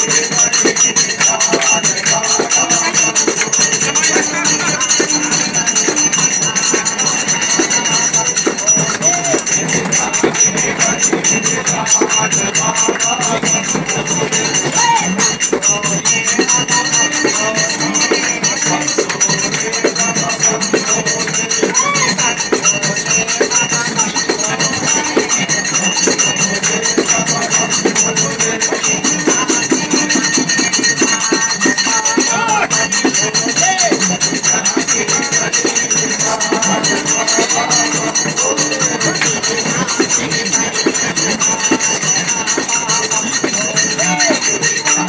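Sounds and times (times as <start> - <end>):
hand clapping: 0.0 - 15.8
jingling hand percussion: 0.0 - 45.0
men singing devotional song: 0.0 - 45.0.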